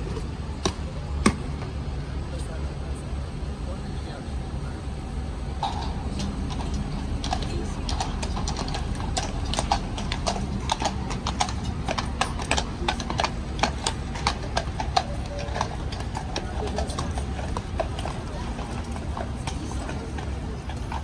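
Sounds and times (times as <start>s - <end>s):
hooves clip-clopping on stone: 5.6s - 21.0s.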